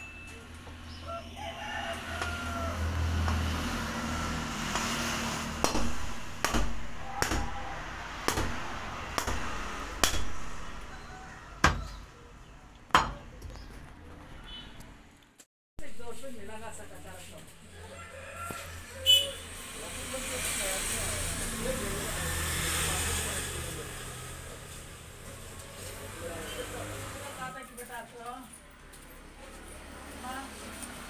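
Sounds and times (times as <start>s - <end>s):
cleaver chopping bone on wood: 5.6s - 7.6s, 8.3s - 10.4s.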